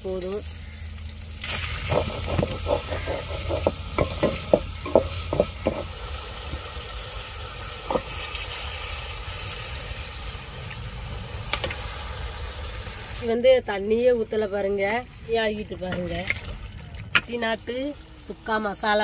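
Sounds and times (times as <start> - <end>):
onions sizzling in oil: 0.0 - 13.4
wooden spatula scraping steel pan: 1.5 - 6.3.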